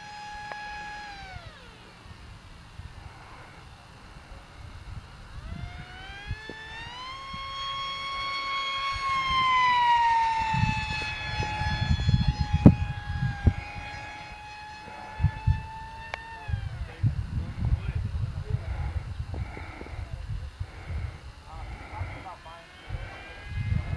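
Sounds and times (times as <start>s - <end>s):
model plane motor whining: 0.0s - 23.9s.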